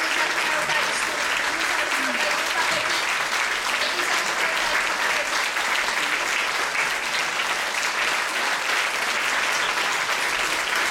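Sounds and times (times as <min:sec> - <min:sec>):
crowd applauding: 0:00.0 - 0:10.9.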